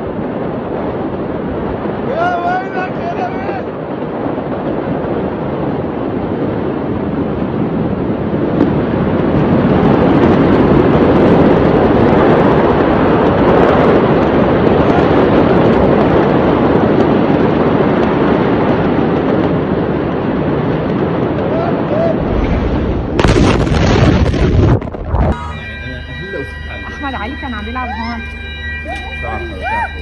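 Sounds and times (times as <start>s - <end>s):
wind on microphone: 0.0s - 30.0s.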